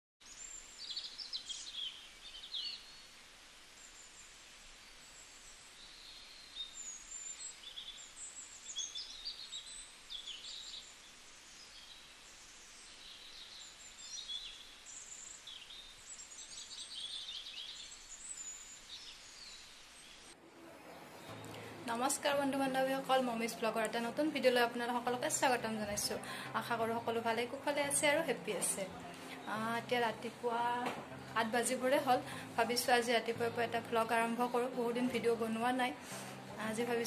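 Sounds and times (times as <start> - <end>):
small birds chirping: 0.2 - 20.4
faint steady hiss: 0.2 - 37.0.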